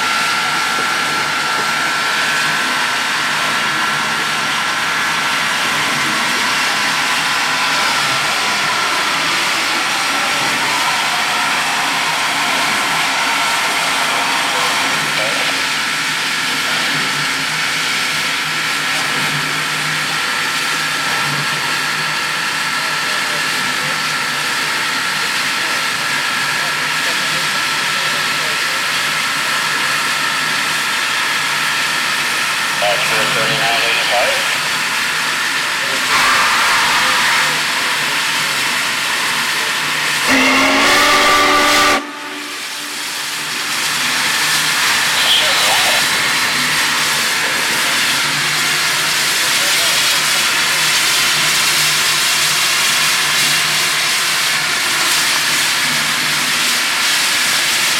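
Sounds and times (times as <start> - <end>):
steam locomotive hiss: 36.0 - 47.9.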